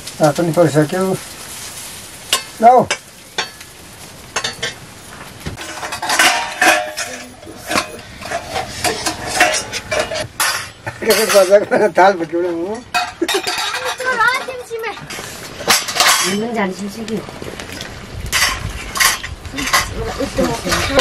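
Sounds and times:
metal plates clattering: 4.3 - 4.9, 5.5 - 16.9, 17.7 - 21.0
metal ladle scraping a pan: 5.6 - 11.6, 12.9 - 16.6, 17.8 - 21.0.

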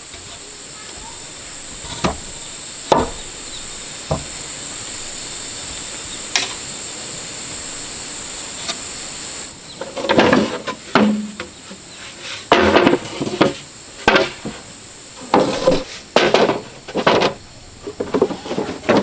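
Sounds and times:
insects buzzing: 0.0 - 19.0
knocks: 1.8 - 2.3, 2.9 - 3.3, 4.1 - 4.4.

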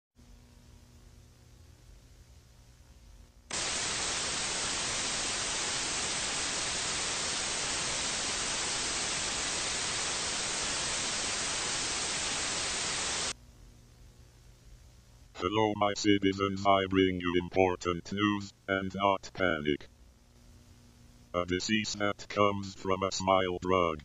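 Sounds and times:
faint low hum: 0.2 - 24.0
television static hiss: 3.4 - 24.0.

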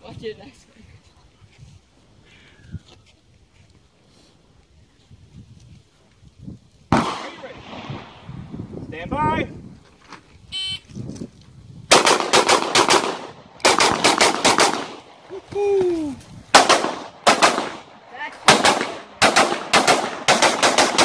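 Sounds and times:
rapid pistol fire: 6.9 - 8.2, 11.9 - 15.1, 16.5 - 17.9, 18.5 - 21.0.

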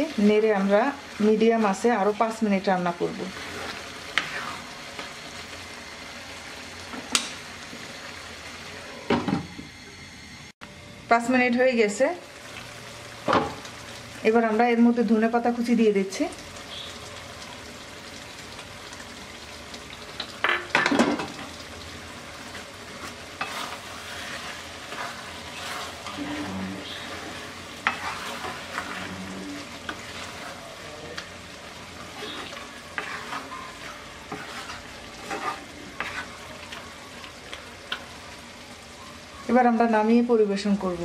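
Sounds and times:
food sizzling: 0.0 - 41.0
wooden spatula scraping a pan: 3.0 - 5.1, 22.5 - 31.2, 31.9 - 37.0.

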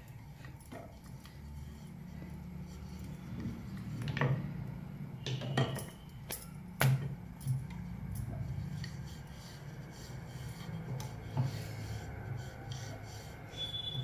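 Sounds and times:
rolling pin rolling dough: 6.9 - 14.0.

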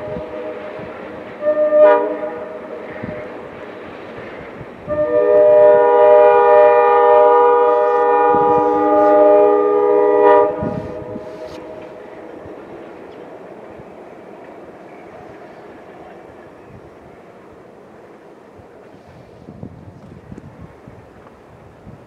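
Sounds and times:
locomotive horn chord: 0.0 - 3.4, 4.8 - 12.0
train rumbling: 0.0 - 22.0.

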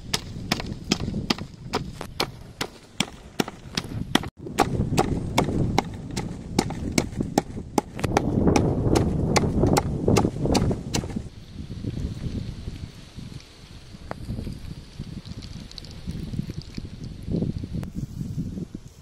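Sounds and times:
pestle pounding in a mortar: 0.0 - 11.2.

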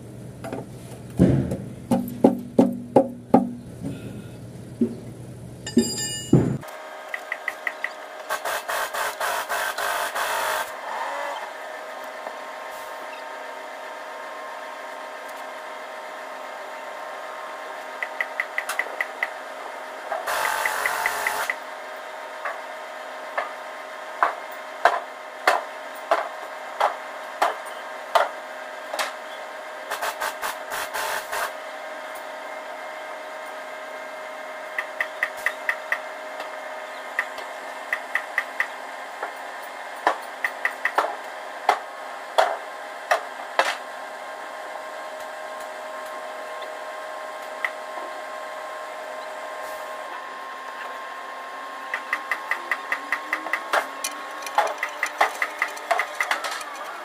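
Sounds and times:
steady background hum: 0.0 - 57.0
sharp knocks: 1.2 - 3.6
fast even clicks: 51.9 - 57.0.

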